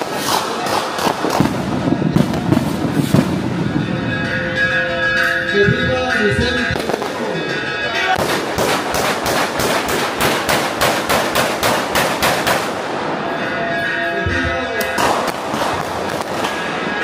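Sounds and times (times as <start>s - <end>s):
firecrackers banging: 0.0s - 17.0s
music: 3.6s - 8.2s
voices: 3.6s - 8.6s, 12.9s - 17.0s.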